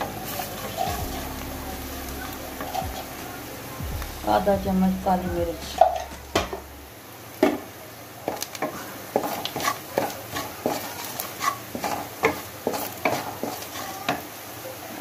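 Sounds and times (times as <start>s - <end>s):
wooden spatula scraping a pan: 0.0s - 1.2s, 8.3s - 14.3s.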